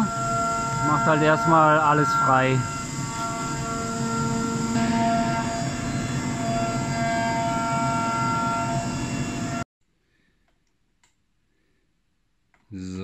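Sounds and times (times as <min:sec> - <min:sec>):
milling machine cutting metal: 0:00.0 - 0:09.6.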